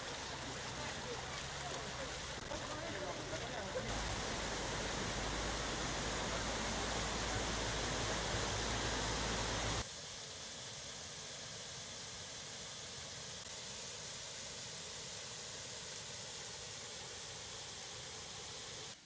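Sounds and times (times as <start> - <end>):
floodwater rushing: 0.0 - 9.8
water pouring over edge: 0.0 - 9.8.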